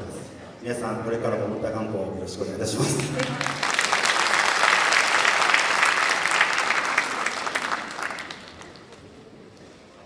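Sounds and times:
audience applauding: 0:02.9 - 0:09.6.

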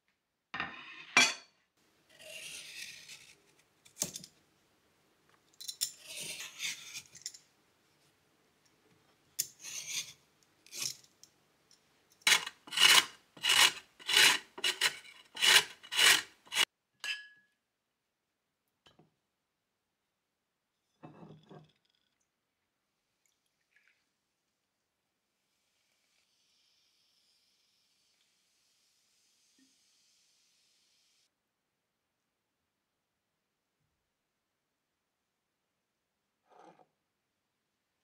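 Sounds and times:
carrot being grated: 0:12.3 - 0:16.6.

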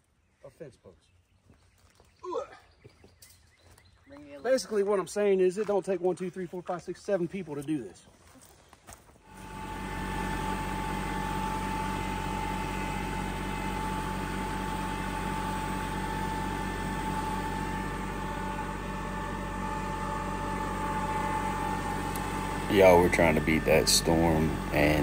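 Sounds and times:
steady high whine: 0:09.3 - 0:25.0
tractor engine drone: 0:09.3 - 0:25.0.

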